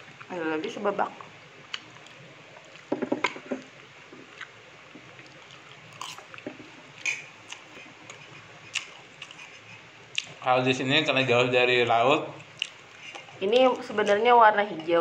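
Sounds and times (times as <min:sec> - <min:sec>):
low hiss: 0:00.0 - 0:15.0
chewing meat: 0:04.1 - 0:10.4, 0:12.4 - 0:13.9.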